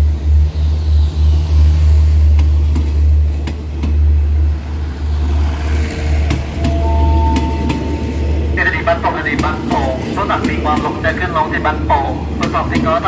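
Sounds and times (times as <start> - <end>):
train coaches rumbling past: 0.0 - 13.0
two-tone brake squeal: 6.5 - 8.3.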